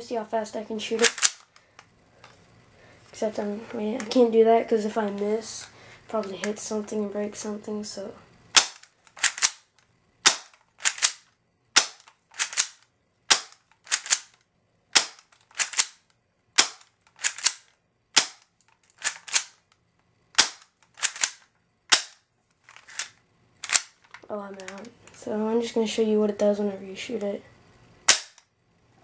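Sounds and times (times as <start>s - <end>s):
airsoft pistol cocking: 1.0s - 1.5s, 8.6s - 14.4s, 15.0s - 16.0s, 16.6s - 17.6s, 18.2s - 19.6s, 20.4s - 22.2s, 28.1s - 28.4s
airsoft pistol shots sharp snap: 8.6s - 8.8s, 10.2s - 11.2s, 11.8s - 12.7s, 15.0s - 15.9s, 16.6s - 16.8s, 18.2s - 18.4s, 20.4s - 20.6s, 21.9s - 22.2s, 28.1s - 28.4s.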